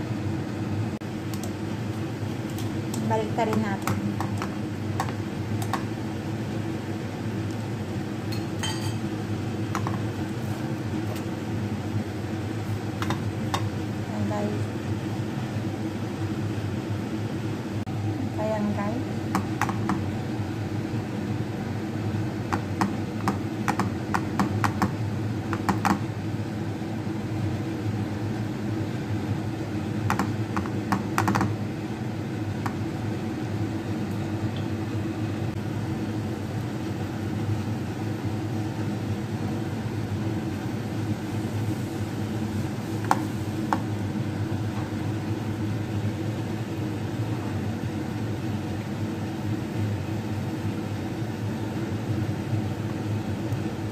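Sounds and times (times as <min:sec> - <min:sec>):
low mechanical hum: 0:00.0 - 0:53.9
dough tapping on frying pan: 0:03.5 - 0:05.9, 0:09.7 - 0:10.0, 0:19.3 - 0:20.0, 0:22.5 - 0:26.0, 0:30.1 - 0:31.6.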